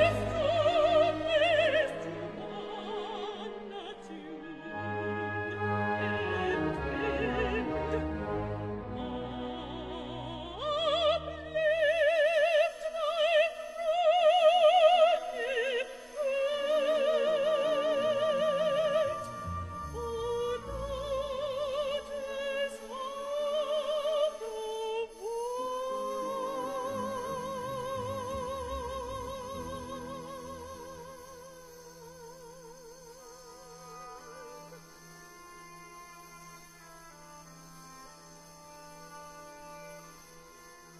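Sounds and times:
woman singing operatically: 0.0 - 8.1, 9.0 - 32.6
orchestra playing: 4.4 - 10.4, 18.7 - 21.9.

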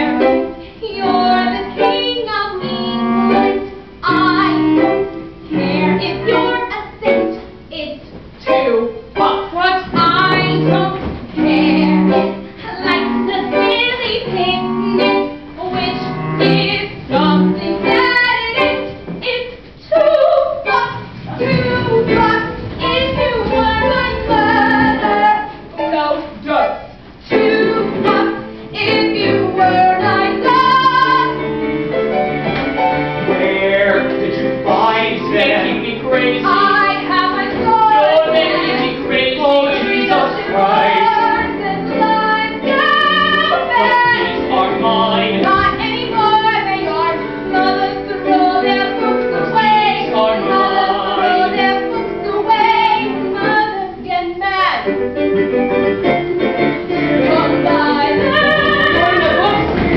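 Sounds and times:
woman singing: 0.0 - 26.4, 27.2 - 31.5, 35.2 - 55.0, 57.1 - 59.9
small band with cello: 20.7 - 53.6, 54.9 - 59.9.

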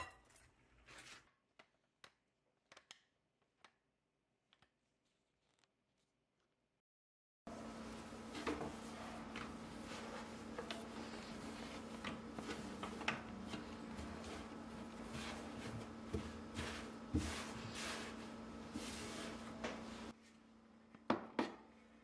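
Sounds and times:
towel rustling: 7.5 - 20.1.

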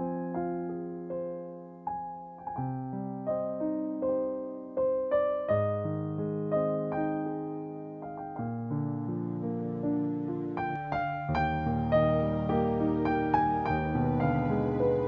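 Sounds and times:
soft piano melody: 0.0 - 15.0.

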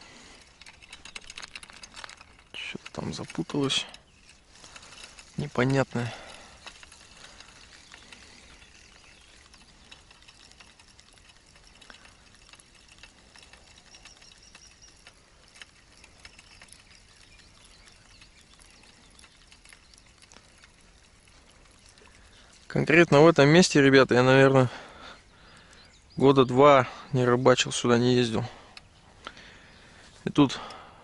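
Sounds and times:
light rustling: 0.0 - 26.3
small clicks: 0.0 - 26.5, 27.6 - 30.8.

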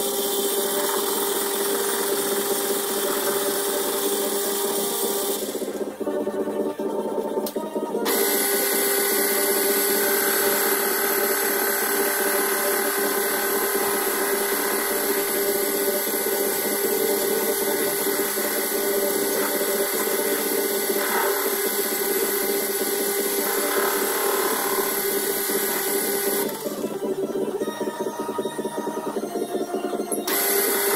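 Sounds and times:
metal lathe motor humming: 8.1 - 27.1, 30.3 - 30.9.

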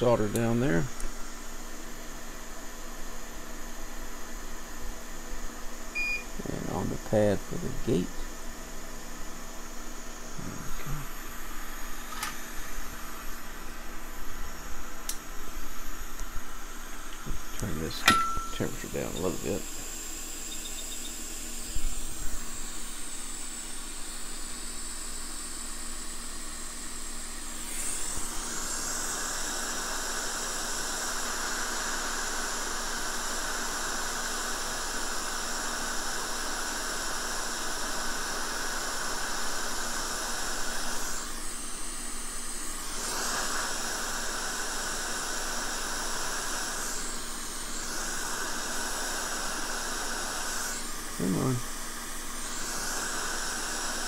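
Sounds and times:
hot air blower hissing: 0.0 - 54.0.

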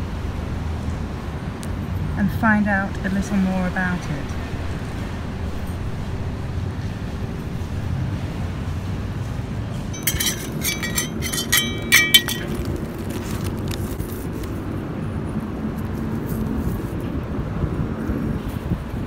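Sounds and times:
pottery pieces clinking: 10.0 - 13.2.

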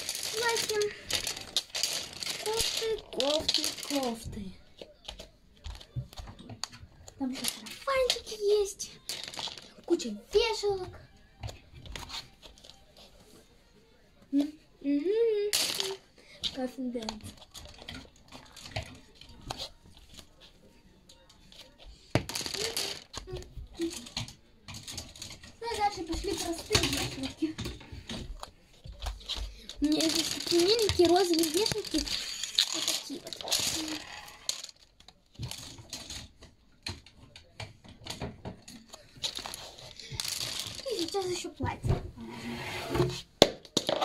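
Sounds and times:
plastic hangers clicking together: 0.0 - 4.2.

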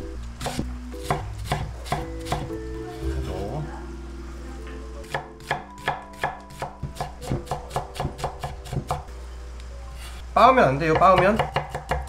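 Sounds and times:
knife chopping on wooden board: 0.4 - 2.6, 5.1 - 9.0, 10.9 - 12.0.

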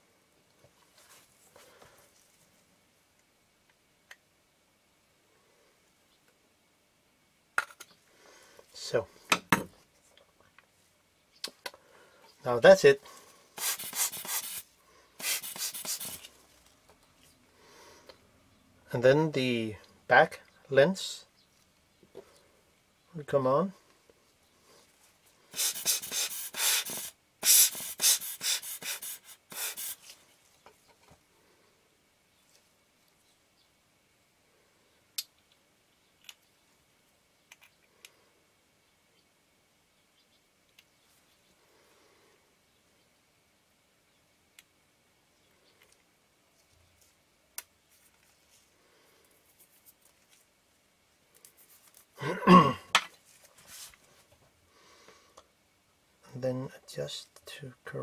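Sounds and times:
hand air blower puffing: 13.6 - 14.6, 15.2 - 16.2, 25.5 - 30.0
person clearing throat or sighing: 52.2 - 53.0.

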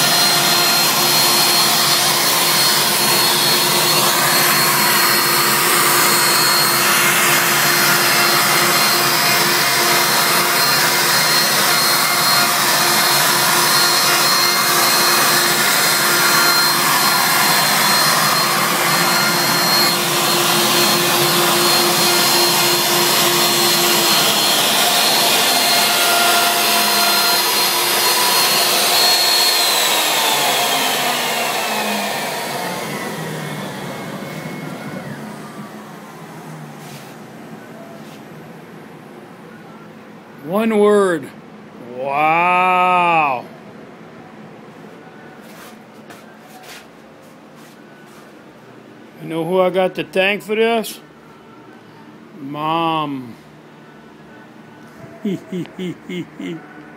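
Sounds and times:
bit cutting into wood: 0.0 - 33.7
router motor high whine: 0.0 - 37.6.

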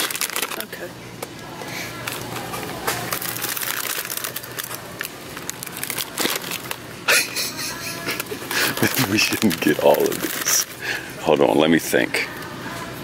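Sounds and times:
plastic wrappers crinkling: 0.0 - 0.9, 2.0 - 6.8, 8.0 - 10.8.

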